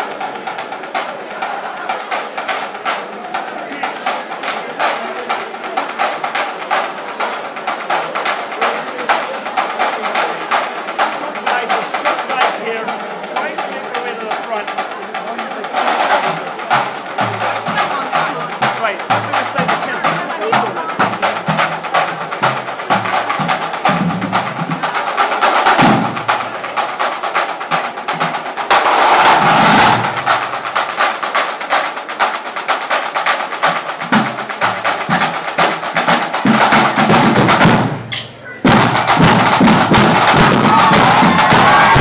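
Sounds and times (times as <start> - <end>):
snare drums playing rolls: 0.0 - 42.0
bass drum: 16.1 - 25.0, 25.7 - 26.8, 33.9 - 42.0.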